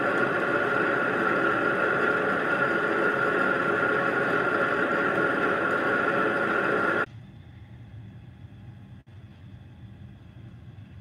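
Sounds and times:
metal lathe running: 0.0s - 7.1s
high-pitched whine: 0.0s - 11.0s.

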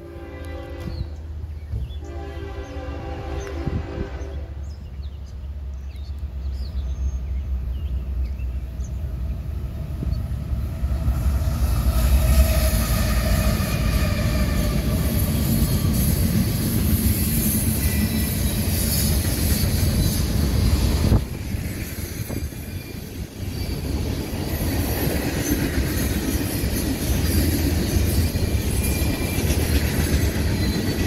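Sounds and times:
diesel locomotive engine rumble: 0.0s - 31.0s
freight cars rolling on rails: 7.5s - 31.0s.

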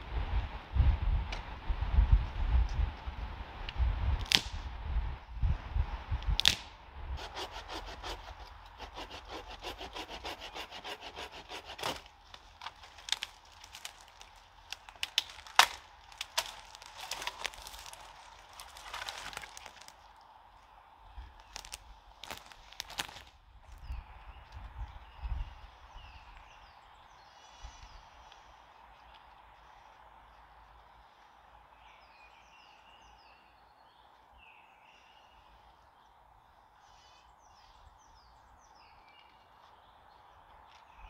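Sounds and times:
twigs crackling and rustling: 4.2s - 4.6s, 6.2s - 6.8s, 10.5s - 24.9s
dry branches snapping: 4.2s - 4.7s, 6.2s - 6.8s, 11.6s - 20.3s, 21.3s - 23.4s.

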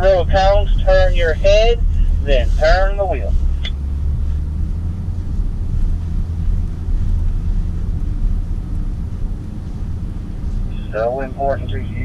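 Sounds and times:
engine and tyres rumbling: 0.0s - 12.0s.

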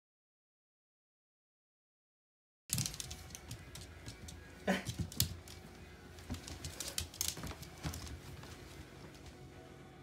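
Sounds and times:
dog claws tapping on wooden floor: 2.7s - 8.6s.

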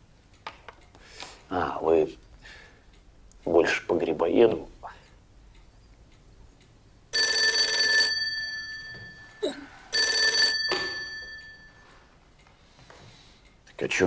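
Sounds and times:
telephone bell ringing: 7.1s - 12.1s.

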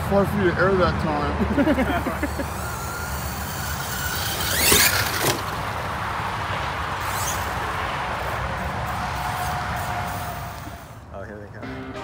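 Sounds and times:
electric motor whining up: 2.2s - 5.6s.

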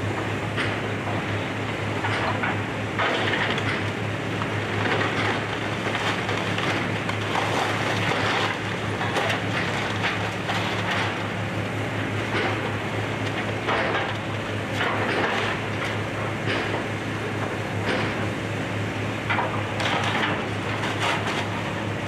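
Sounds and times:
excavator diesel engine running: 0.0s - 22.0s
demolition debris crunching: 3.0s - 11.4s.

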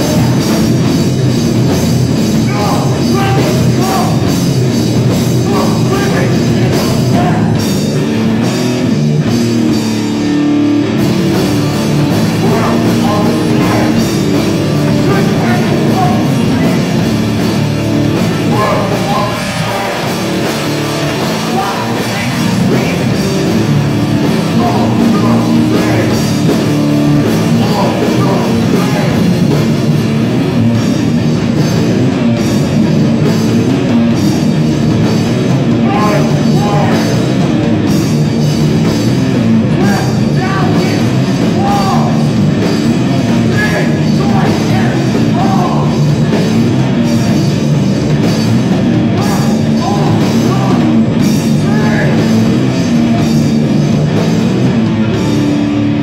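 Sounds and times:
vocals into a microphone: 0.0s - 0.7s, 2.4s - 4.4s, 5.4s - 7.8s, 12.1s - 17.3s, 18.2s - 26.5s, 27.2s - 29.5s, 35.7s - 37.4s, 39.7s - 42.4s, 43.3s - 46.1s, 49.0s - 52.6s
distorted electric guitars: 0.0s - 56.0s
drum kit: 0.0s - 56.0s.

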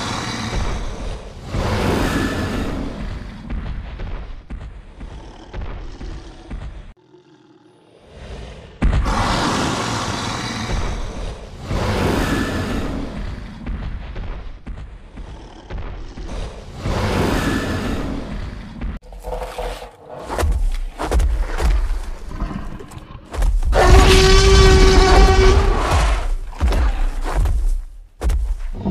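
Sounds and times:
dinosaur roars: 5.0s - 13.6s.

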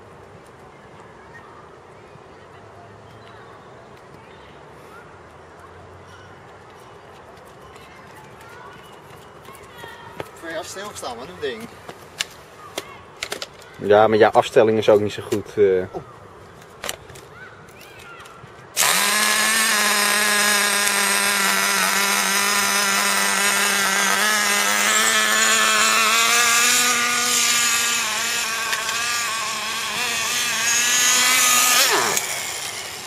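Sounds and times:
small glow engine running: 18.8s - 33.0s.

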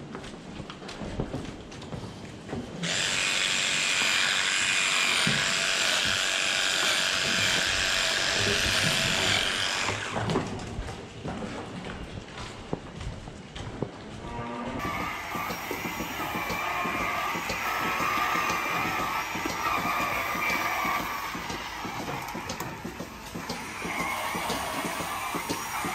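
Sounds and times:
cordless power tool whine: 2.8s - 10.4s, 14.8s - 25.9s.

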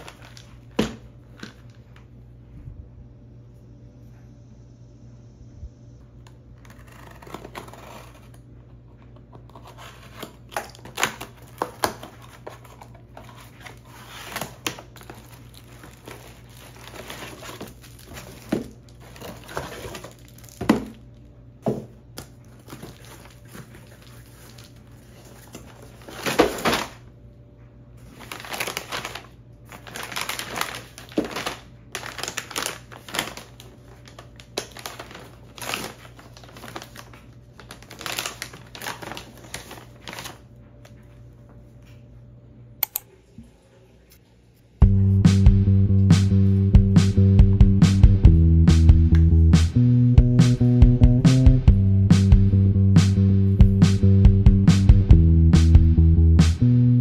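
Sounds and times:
plastic wrap crinkling: 0.0s - 2.0s, 6.5s - 21.3s, 22.0s - 27.2s, 28.0s - 41.1s.

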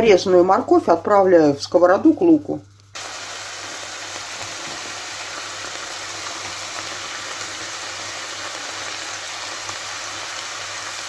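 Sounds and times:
vegetables sizzling in a frying pan: 2.9s - 11.0s.

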